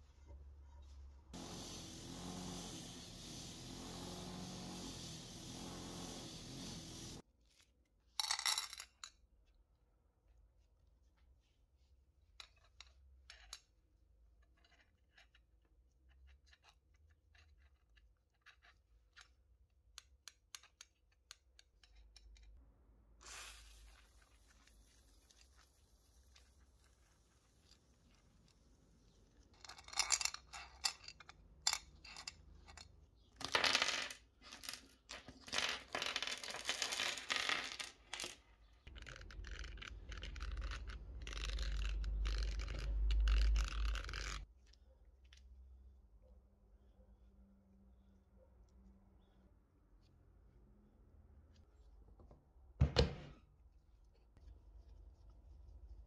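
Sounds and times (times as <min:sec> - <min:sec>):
scraping and rubbing: 0:23.5 - 0:44.5
metal bolts and nuts clinking: 0:29.6 - 0:33.8.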